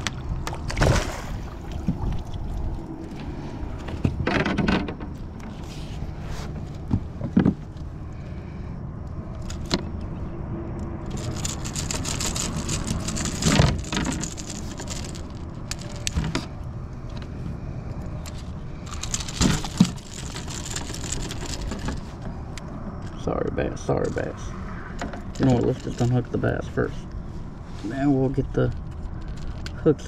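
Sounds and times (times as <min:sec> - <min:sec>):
fish thrashing in a net: 0:00.6 - 0:02.3
metal hooks jingling and rattling: 0:11.1 - 0:16.1, 0:18.9 - 0:22.0.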